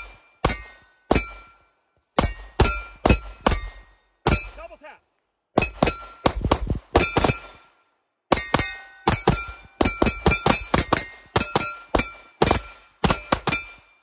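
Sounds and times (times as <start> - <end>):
ringing tone after gunshots: 0.0 - 4.8, 5.6 - 14.0
rapid pistol gunshots: 5.6 - 7.6, 8.3 - 13.8.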